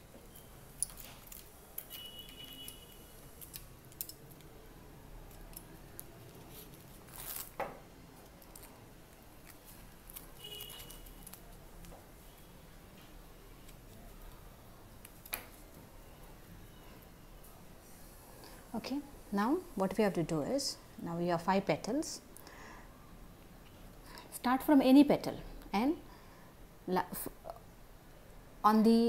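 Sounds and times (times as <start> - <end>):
floral tape clicking and rustling: 0.1 - 15.9.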